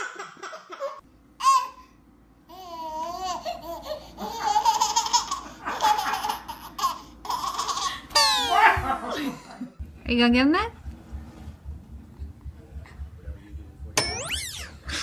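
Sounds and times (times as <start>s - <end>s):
baby laughing: 0.0s - 1.8s, 2.5s - 8.8s.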